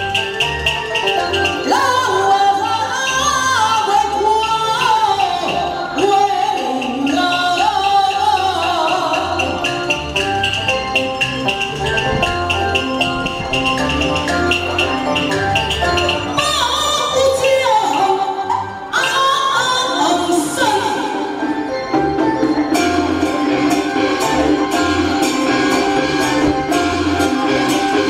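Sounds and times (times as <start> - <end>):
quick percussion beat: 6.8 - 16.8.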